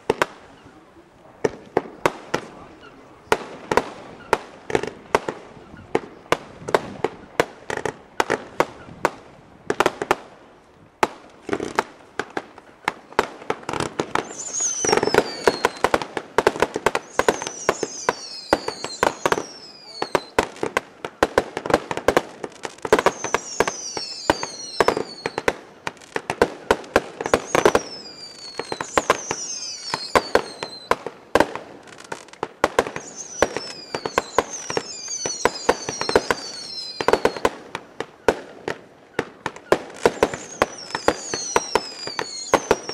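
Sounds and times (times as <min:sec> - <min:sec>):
fireworks launches and bursts: 0:00.0 - 0:00.6, 0:01.2 - 0:42.9
falling firework whistles: 0:13.1 - 0:42.9.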